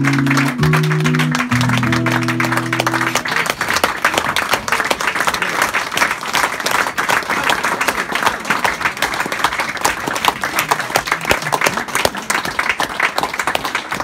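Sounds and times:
live song held notes: 0.0 - 5.0
audience applauding: 0.0 - 14.0.

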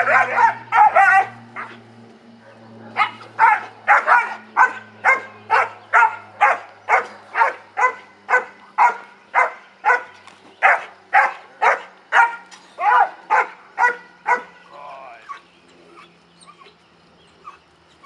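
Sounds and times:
puppy barking: 0.0 - 1.8, 2.4 - 14.6, 15.2 - 15.4.

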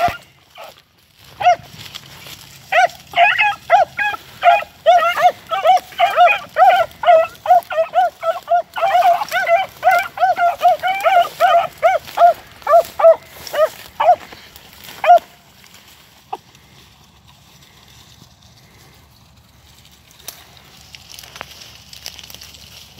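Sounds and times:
hounds baying: 0.0 - 16.8.

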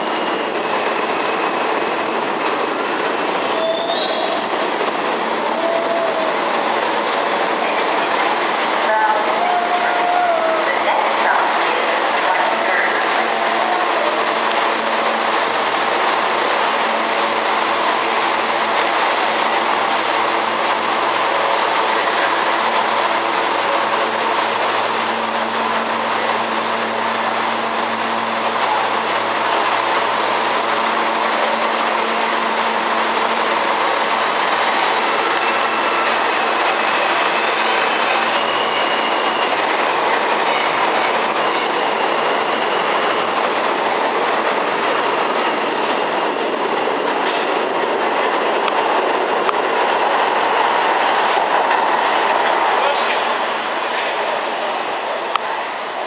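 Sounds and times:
subway train equipment humming: 0.0 - 56.0
wheel squeal: 3.6 - 4.6.

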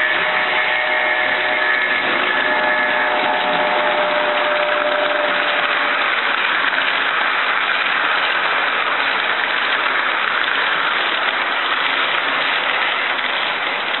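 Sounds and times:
model locomotive motor whine: 0.0 - 7.1
model train wheels clattering on rails: 1.9 - 14.0.

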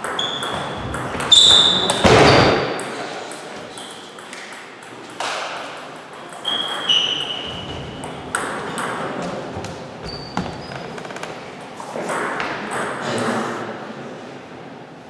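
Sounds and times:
shoes squeaking: 0.0 - 2.7, 6.3 - 11.5.

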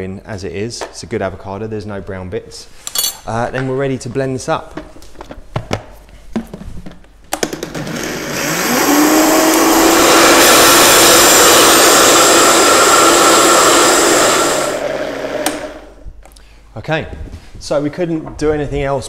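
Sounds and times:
blender motor blending ice: 7.4 - 16.0.

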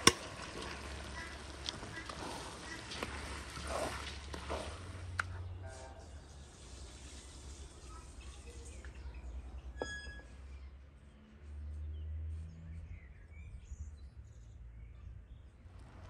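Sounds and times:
water pouring from a jug: 0.0 - 5.1
birds chirping: 0.0 - 16.0.

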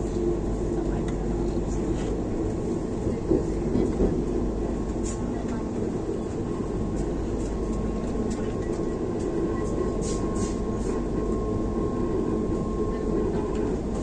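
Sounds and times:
train wheels rumbling on track: 0.0 - 14.0.

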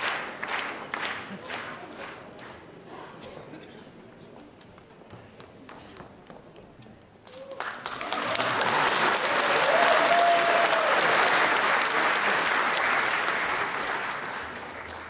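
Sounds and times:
audience applause: 0.0 - 2.6, 7.2 - 15.0
person cheering: 9.4 - 11.1.

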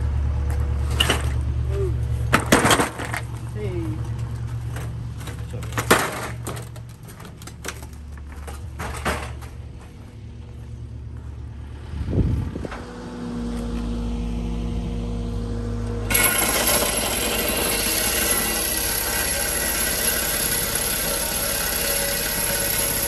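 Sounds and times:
hydraulic hammer driving rod: 16.1 - 23.0.

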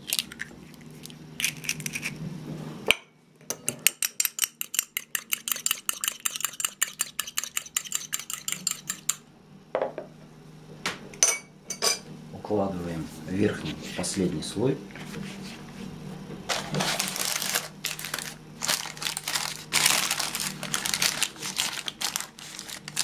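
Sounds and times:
fork clinking against cup: 3.8 - 9.2.

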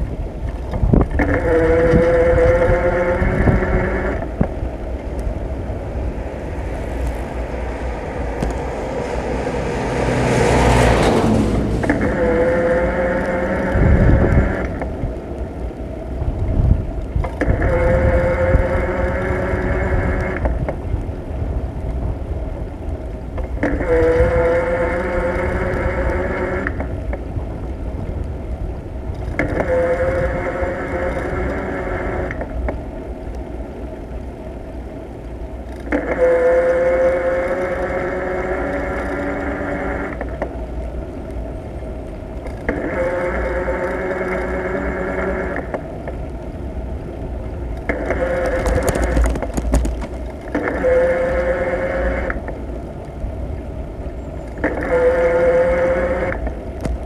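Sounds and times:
whirring tone: 0.0 - 21.0, 23.3 - 27.2, 29.1 - 32.8, 35.6 - 53.2, 54.0 - 57.0
wind rumble and road noise: 0.0 - 57.0
van driving past: 5.8 - 14.7.

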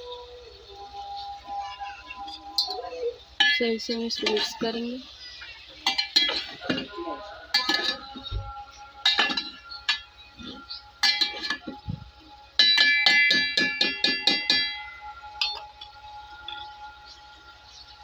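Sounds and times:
metal spoon clanking on a pot: 2.6 - 4.7, 5.8 - 8.3, 9.0 - 11.9, 12.6 - 16.0.

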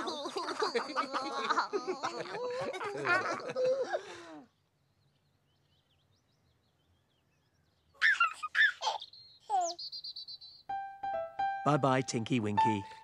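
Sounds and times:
baby giggling: 0.0 - 4.0, 8.0 - 9.8
childlike voices babbling and giggling: 0.0 - 4.4, 8.0 - 9.9.

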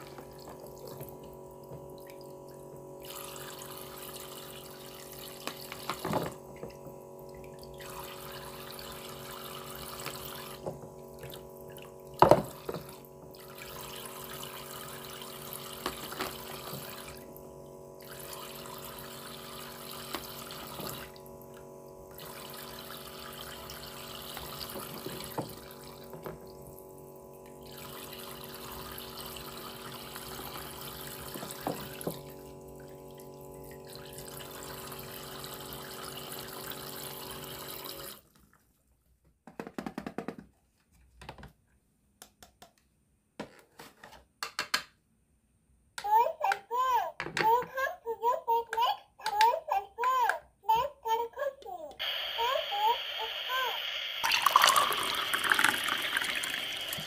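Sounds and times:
small pump humming: 0.0 - 38.4, 46.1 - 57.0
water running into plastic basin: 0.0 - 38.8, 52.4 - 57.0
plastic toy fruit clacking: 48.7 - 50.5.

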